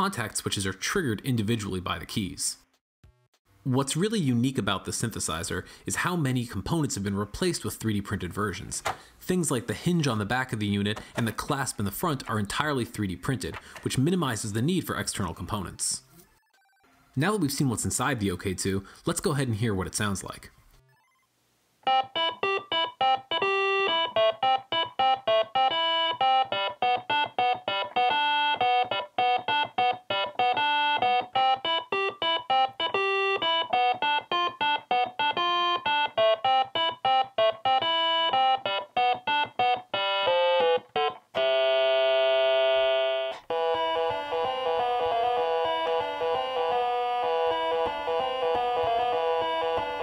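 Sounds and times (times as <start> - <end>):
synthesizer notes: 21.9 - 50.0.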